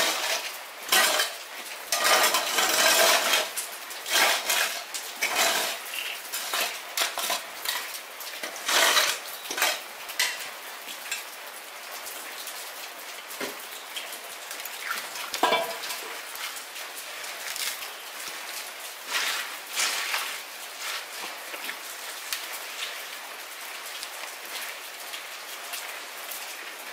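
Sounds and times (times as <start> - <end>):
dishes and utensils clinking: 0.0 - 3.5, 4.1 - 10.4, 15.4 - 16.2.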